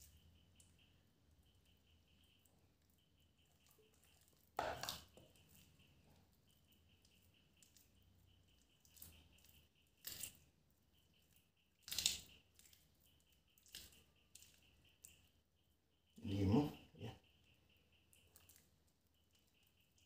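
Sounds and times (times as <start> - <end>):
hands squelching wet marinade: 2.3 - 15.2.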